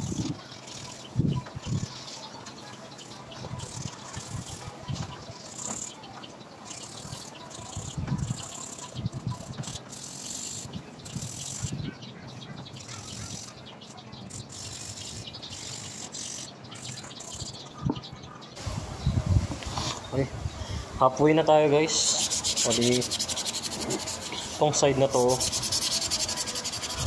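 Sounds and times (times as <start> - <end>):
sandpaper rubbing on metal wheel: 21.9 - 27.0.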